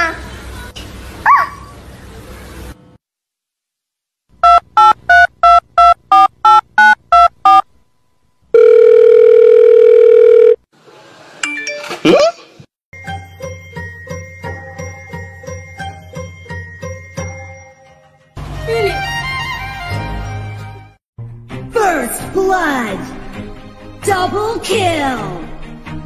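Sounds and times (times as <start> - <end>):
telephone keypad beeps: 4.4 - 7.6, 8.6 - 10.6
music with jingling bells: 13.0 - 18.2.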